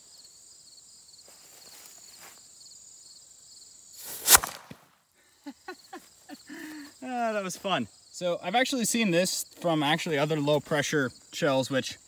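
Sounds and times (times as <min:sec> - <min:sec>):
crickets chirring: 0:00.0 - 0:12.0
cannon shot: 0:04.2 - 0:04.8.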